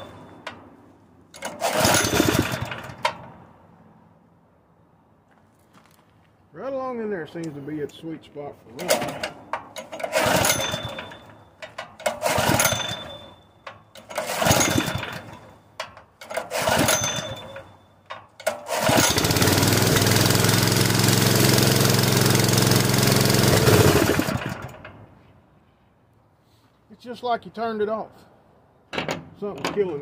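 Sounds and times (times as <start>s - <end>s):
small engine popping and running: 1.5s - 2.9s, 14.2s - 15.4s, 16.4s - 17.6s, 18.6s - 24.8s.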